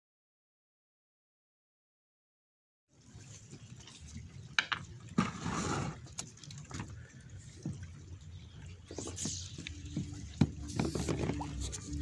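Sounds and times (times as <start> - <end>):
sea water splashing: 2.9 - 12.0
low steady rumble: 7.4 - 12.0.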